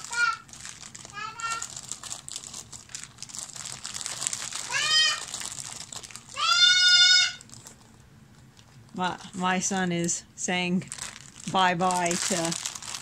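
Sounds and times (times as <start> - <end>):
child calling out: 0.0 - 0.5, 1.1 - 1.7, 4.6 - 5.3, 6.3 - 7.4
plastic bags crinkling: 0.0 - 10.1, 10.8 - 13.0.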